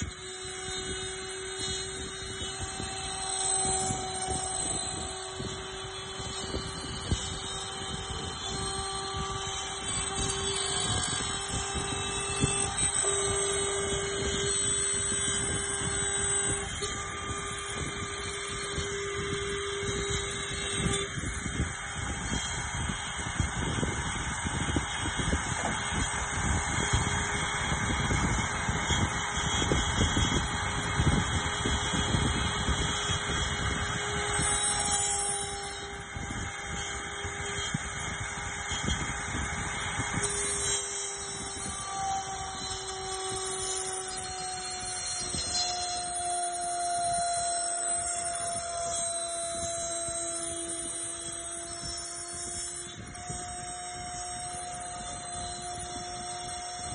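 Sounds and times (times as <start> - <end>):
router cutting wood: 0.0 - 56.9
spindle whine: 0.0 - 56.9.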